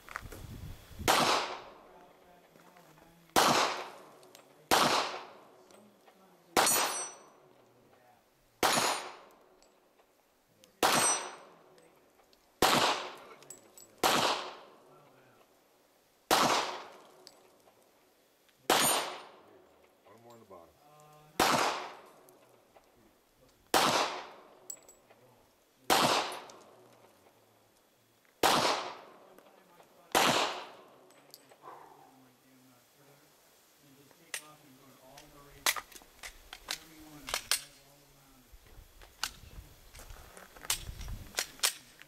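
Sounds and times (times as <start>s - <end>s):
handgun shots with echo: 1.1s - 1.6s, 3.4s - 4.0s, 4.7s - 5.4s, 6.6s - 7.2s, 8.6s - 9.3s, 10.8s - 11.5s, 14.0s - 14.7s, 18.7s - 19.4s, 23.7s - 24.4s, 25.9s - 26.6s, 30.1s - 30.8s.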